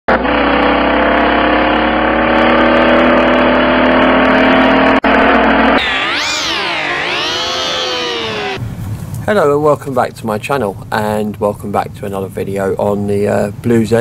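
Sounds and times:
car engine revving: 0.1 - 8.6
car engine running: 4.6 - 8.6.

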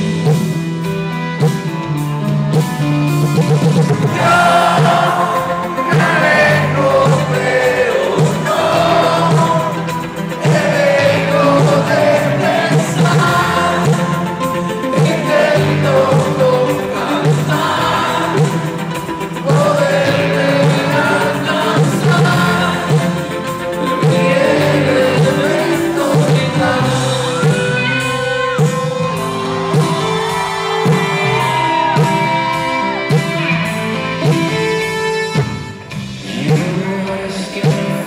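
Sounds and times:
live rock band with singer: 0.0 - 38.0
crowd shouting: 4.1 - 18.8, 24.4 - 33.9.

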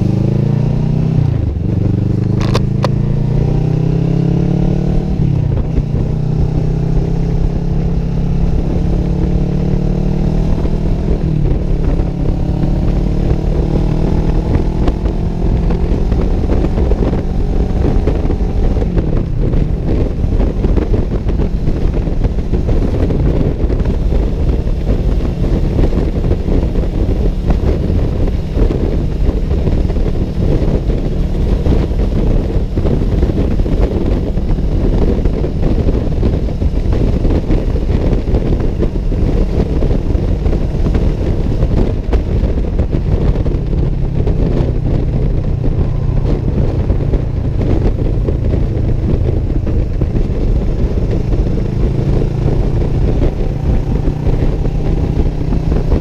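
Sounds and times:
vehicle engine and road noise: 0.0 - 56.0
wind on microphone: 0.0 - 56.0.

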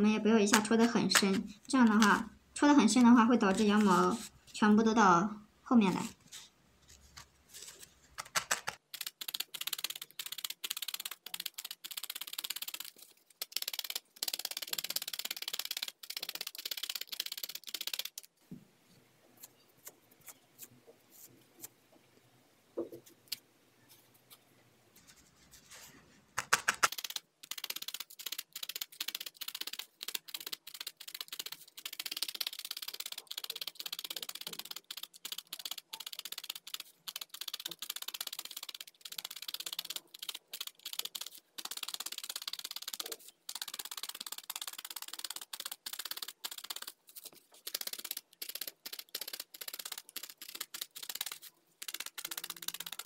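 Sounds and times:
felting needle stabbing foam: 26.5 - 53.0.

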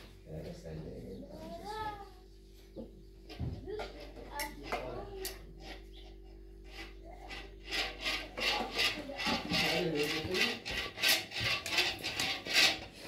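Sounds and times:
metal ladle scraping rice pot: 6.7 - 13.0.

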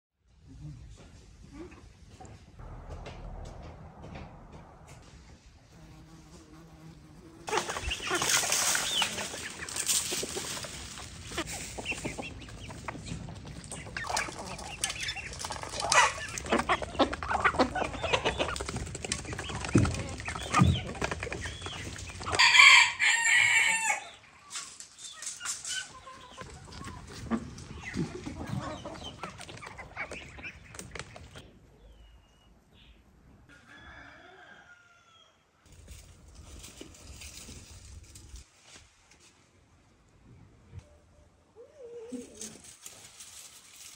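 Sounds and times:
chickens clucking: 7.5 - 22.5, 24.6 - 31.5
rooster crowing: 22.4 - 24.1, 33.5 - 35.5.

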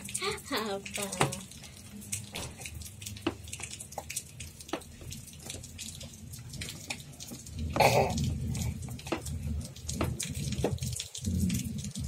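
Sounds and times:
baby sucking and smacking: 6.6 - 11.4.

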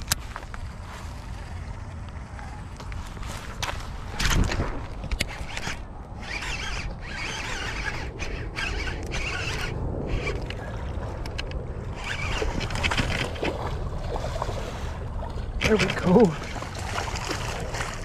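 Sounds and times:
fishing reel cranking: 5.1 - 10.6, 11.2 - 13.4.

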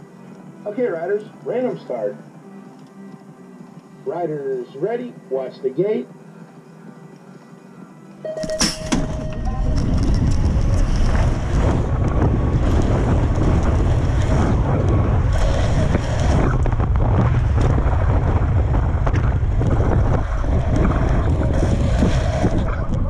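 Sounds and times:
heavy wind buffeting microphone: 8.9 - 23.0.

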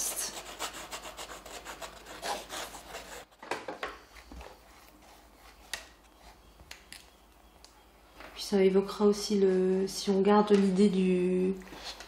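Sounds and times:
pencil scratching on paper: 0.0 - 3.3.

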